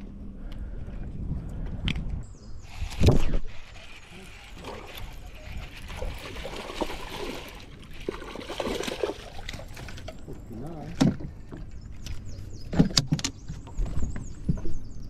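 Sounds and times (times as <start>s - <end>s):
fish splashing at the surface: 3.8s - 10.0s.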